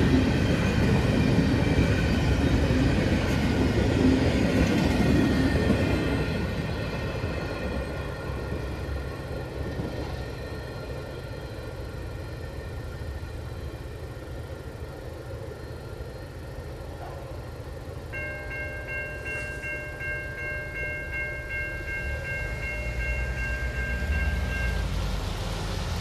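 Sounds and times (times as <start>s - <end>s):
crossing warning bell ringing: 17.7s - 25.5s
cars driving across crossing: 17.8s - 26.0s.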